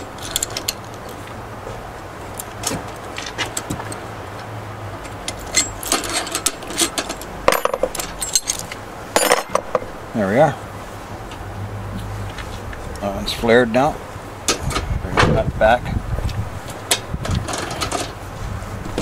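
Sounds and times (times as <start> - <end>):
metal tool clicks and clinks: 0.1 - 1.2, 5.0 - 9.8.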